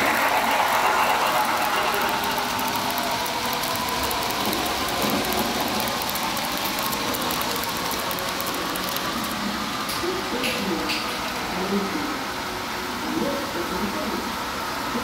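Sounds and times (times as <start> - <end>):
wheels ticking on rails: 0.0 - 10.1.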